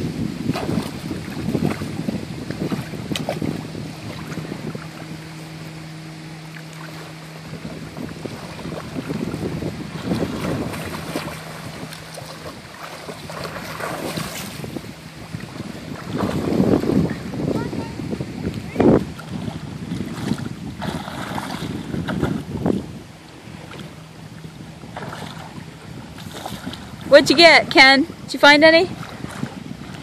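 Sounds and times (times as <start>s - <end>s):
swimmers splashing: 0.0s - 17.2s
low steady hum: 0.0s - 30.0s
water lapping against microphone: 0.0s - 30.0s.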